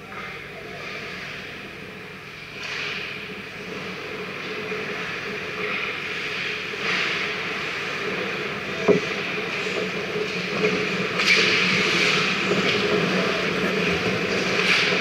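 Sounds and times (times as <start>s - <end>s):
skate blades scraping ice: 3.7s - 15.0s.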